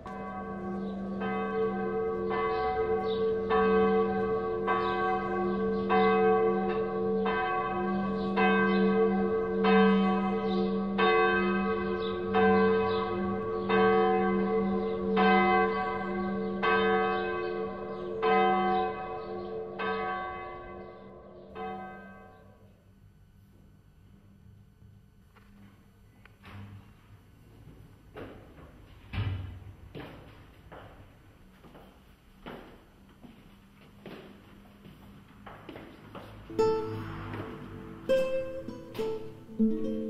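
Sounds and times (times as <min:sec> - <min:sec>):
bell ringing: 0:36.5 - 0:40.0.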